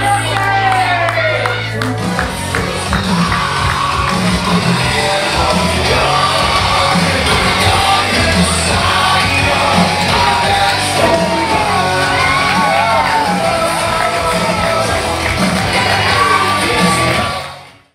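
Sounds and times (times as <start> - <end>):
loud music with singing: 0.0 - 17.9
people yelling: 7.4 - 17.4.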